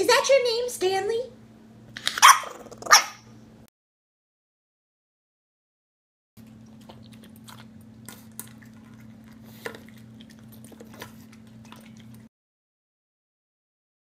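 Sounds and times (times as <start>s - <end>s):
puppy chewing and lapping: 6.4s - 12.3s.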